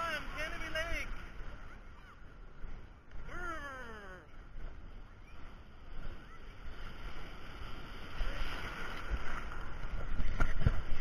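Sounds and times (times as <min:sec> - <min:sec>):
ocean waves rushing: 0:00.0 - 0:11.0
sharp water splashes: 0:04.5 - 0:11.0.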